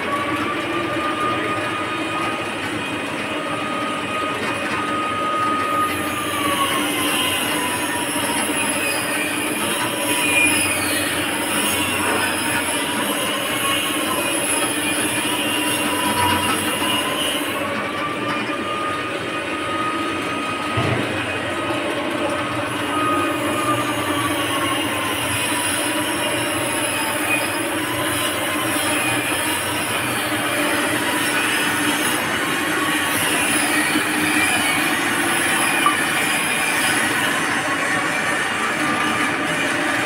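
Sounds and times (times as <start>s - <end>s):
thin metallic squeal: 5.3s - 19.0s, 22.8s - 39.7s.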